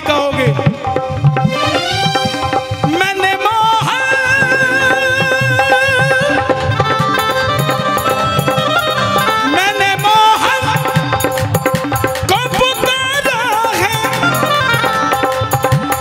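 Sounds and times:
wavering melody line: 4.4s - 16.0s
hand drums steady beat: 4.6s - 16.0s.

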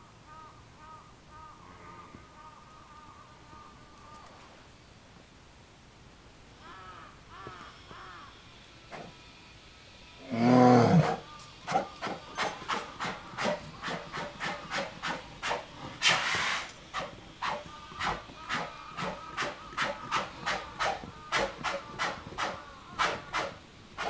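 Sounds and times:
polar bear growling: 10.2s - 16.1s.

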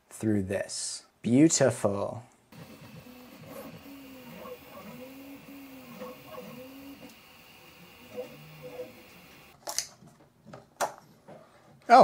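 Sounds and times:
printer stepper motors whirring: 2.6s - 9.6s.

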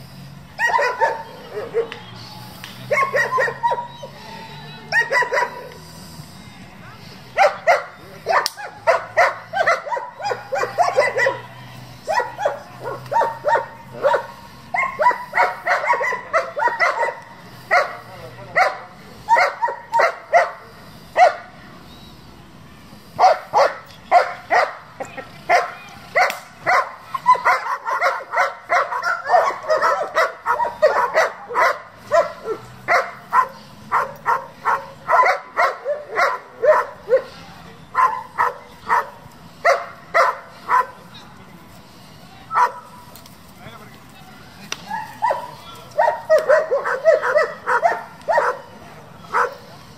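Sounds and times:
dog barking hard: 7.4s - 11.4s, 12.1s - 18.0s, 25.5s - 37.3s, 38.0s - 41.0s, 45.2s - 48.7s.

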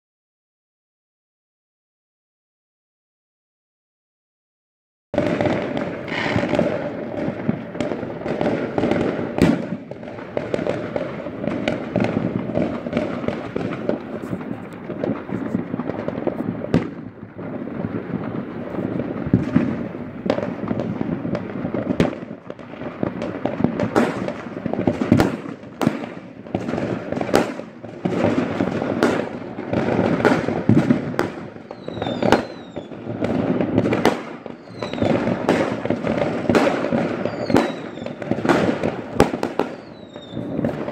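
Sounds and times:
falling firework whistles: 5.2s - 7.3s, 25.0s - 40.9s
distant fireworks bangs and crackling: 5.2s - 40.9s
loud firework bangs: 5.2s - 40.9s.

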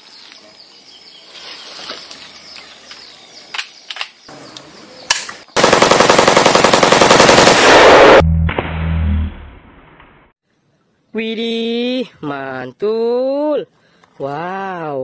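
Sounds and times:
rapid automatic rifle gunfire: 5.6s - 8.2s.

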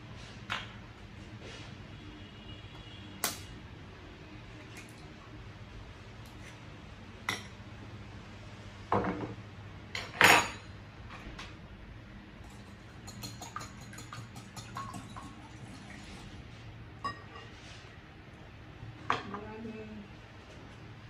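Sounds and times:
whisk beating eggs in bowl: 12.5s - 15.4s.

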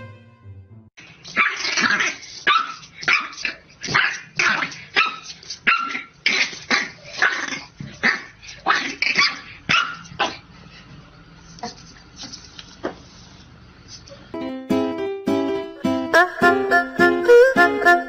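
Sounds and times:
puppy barking sharply: 9.2s - 10.3s.

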